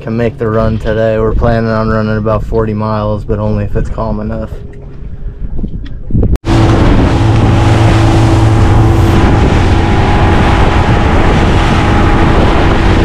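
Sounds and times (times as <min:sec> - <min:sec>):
wind on microphone: 0:00.0 - 0:13.0
motorboat engine drone: 0:06.4 - 0:13.0
water churning past hull: 0:06.4 - 0:13.0.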